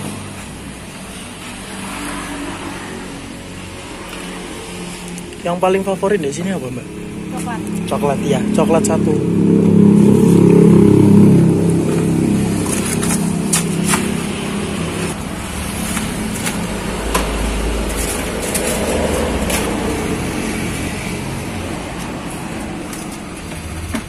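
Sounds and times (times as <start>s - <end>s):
traffic hum: 0.0s - 24.0s
vehicle engine passing: 0.0s - 24.0s.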